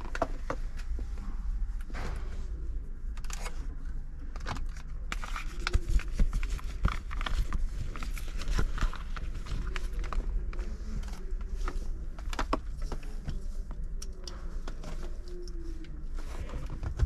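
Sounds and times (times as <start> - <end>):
steady low hum: 0.0 - 17.0
clicks and rustling of handled parts: 3.1 - 17.0.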